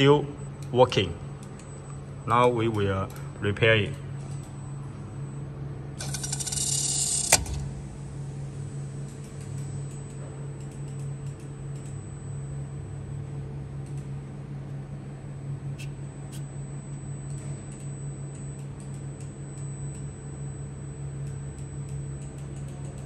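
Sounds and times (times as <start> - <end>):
low electrical hum: 0.0 - 23.0
faint high whine: 4.6 - 22.7
sharp click: 6.0 - 7.7.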